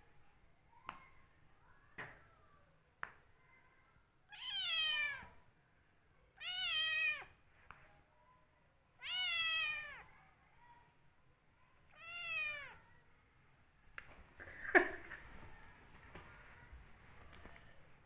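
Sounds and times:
cat meowing: 4.3 - 5.4, 6.4 - 7.3, 9.0 - 10.1, 11.9 - 12.8.

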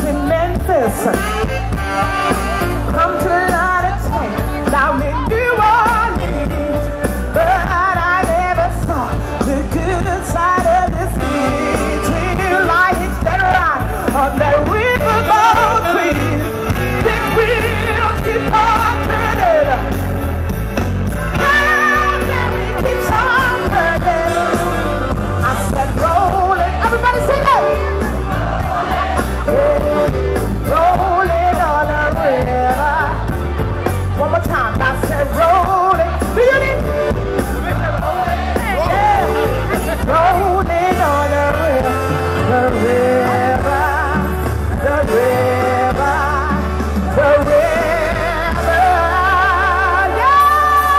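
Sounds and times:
woman singing into a microphone: 0.0 - 20.1, 21.3 - 28.3, 29.0 - 50.9
rock and roll band playing: 0.0 - 50.9.

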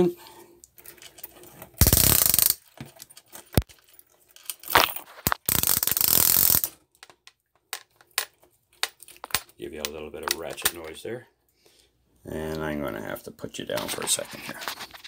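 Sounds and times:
ratchet wrench clicking: 1.8 - 2.6, 5.5 - 6.7.

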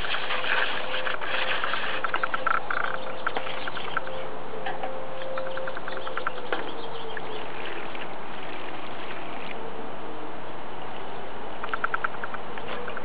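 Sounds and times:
small bird calling: 0.0 - 4.3, 4.9 - 9.6, 11.6 - 13.0
steady rushing noise: 0.0 - 4.5.

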